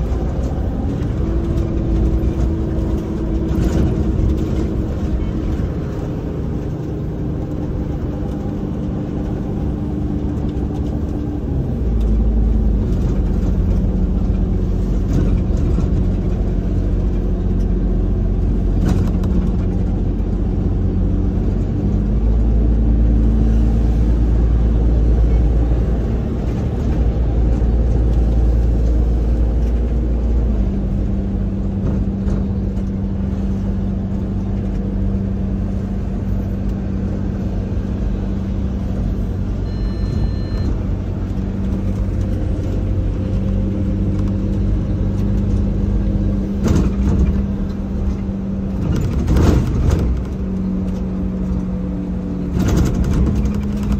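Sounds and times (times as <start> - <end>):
bus drivetrain humming: 0.0 - 53.9
short electronic beep: 39.6 - 40.8.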